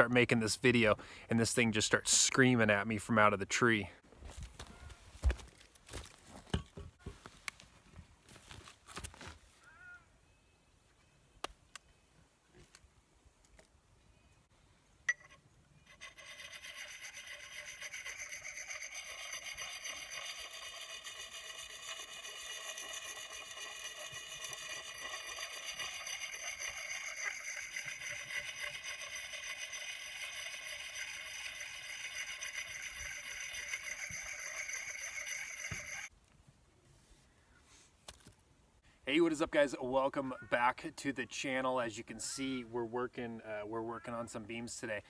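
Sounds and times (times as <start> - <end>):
sharpening stone scraping axe blade: 15.1 - 36.1.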